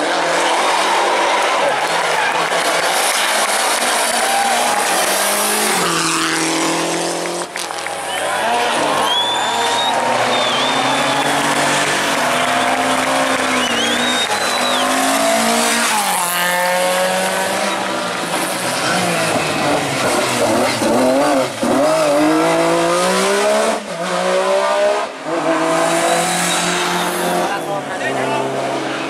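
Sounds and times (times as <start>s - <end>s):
rally car engine revving hard: 0.0s - 7.8s, 8.4s - 29.0s
thin tyre squeal: 25.9s - 27.6s.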